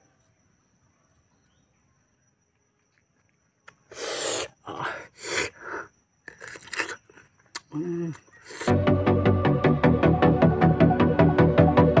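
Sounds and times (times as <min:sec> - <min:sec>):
man eating noisily: 0:06.3 - 0:08.7.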